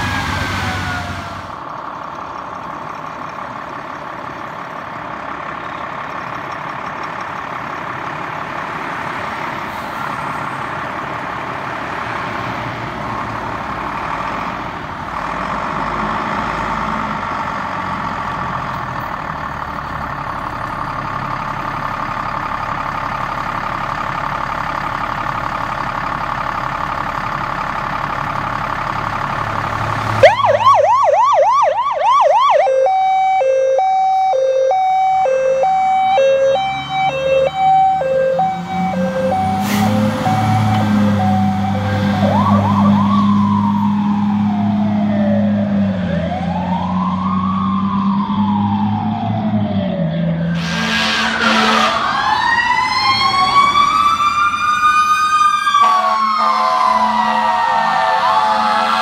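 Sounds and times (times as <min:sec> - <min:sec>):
diesel engine rumble: 0:00.0 - 0:59.0
fire engine siren: 0:00.0 - 0:59.0
short loud horn burst: 0:50.6 - 0:52.0.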